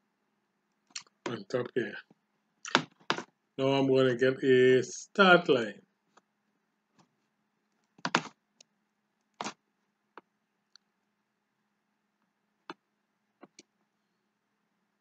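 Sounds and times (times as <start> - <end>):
faint low hum: 0.0 - 2.6
computer mouse and keyboard clicks: 7.7 - 8.7, 13.4 - 13.7.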